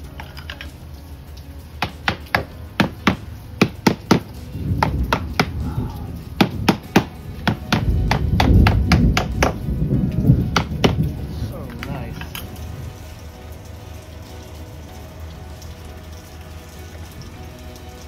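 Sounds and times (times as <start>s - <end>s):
thunder rumbling: 1.6s - 17.6s
hammer tapping on wood: 1.8s - 5.6s, 6.4s - 9.6s, 10.6s - 11.0s.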